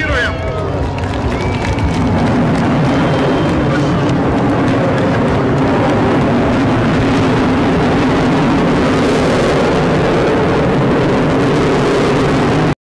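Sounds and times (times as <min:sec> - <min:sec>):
jet flying overhead: 0:00.0 - 0:12.8.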